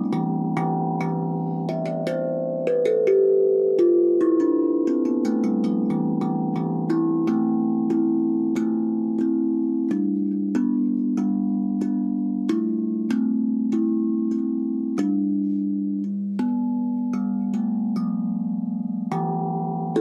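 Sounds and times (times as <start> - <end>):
steel tongue drum melody: 0.0 - 20.0.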